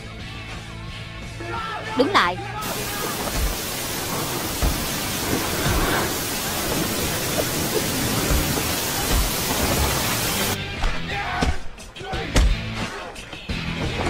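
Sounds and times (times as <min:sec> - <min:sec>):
loud static hiss: 0:02.6 - 0:10.6.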